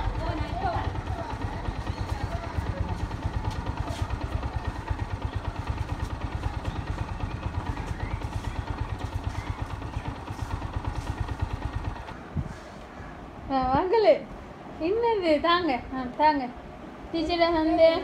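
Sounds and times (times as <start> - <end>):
vehicle engine idling: 0.0 - 12.6.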